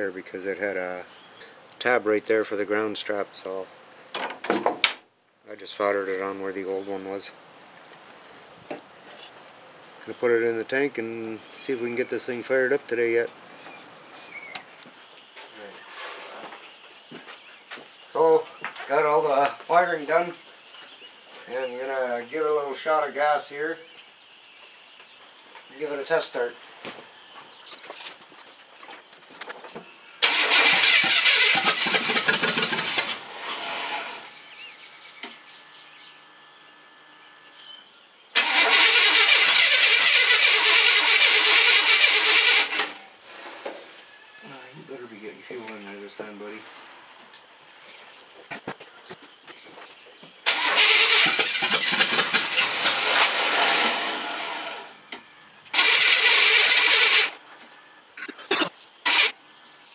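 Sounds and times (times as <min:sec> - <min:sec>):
truck engine cranking: 0:30.2 - 0:34.3, 0:38.4 - 0:43.0, 0:50.4 - 0:55.0, 0:55.7 - 0:57.4, 0:59.0 - 0:59.4.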